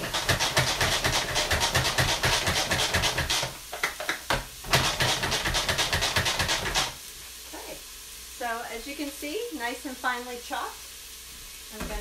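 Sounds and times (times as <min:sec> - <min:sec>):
food processor blades whirring: 0:00.0 - 0:03.6, 0:04.6 - 0:07.0.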